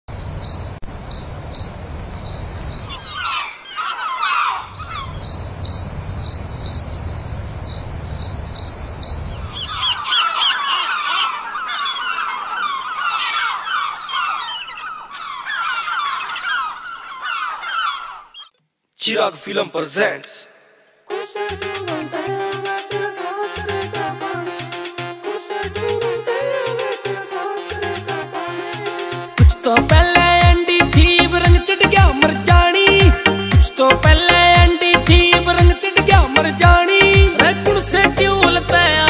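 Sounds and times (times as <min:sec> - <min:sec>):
many birds chirping: 0:02.6 - 0:06.4, 0:08.6 - 0:18.6.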